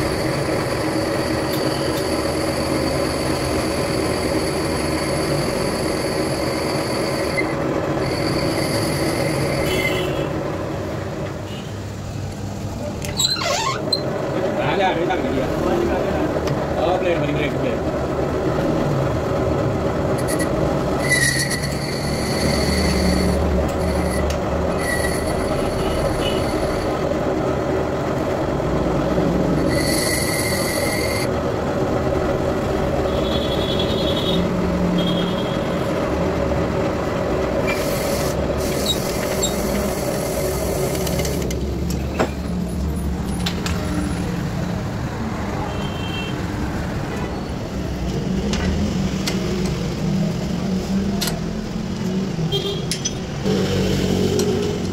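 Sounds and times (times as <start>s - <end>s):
lathe tool scraping metal: 0.0s - 10.1s, 20.1s - 27.1s, 29.2s - 31.3s, 37.6s - 41.5s
lathe motor hum: 0.0s - 11.3s, 17.8s - 33.1s, 35.9s - 41.9s
high squealing tones: 13.1s - 14.1s, 20.2s - 27.0s.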